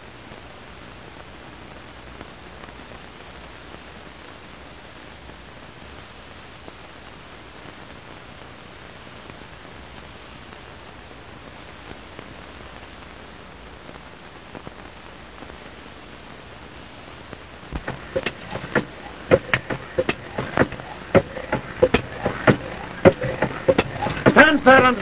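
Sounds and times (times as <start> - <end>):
film soundtrack hiss: 0.0 - 25.0
sharp mechanical clanks: 17.8 - 24.9.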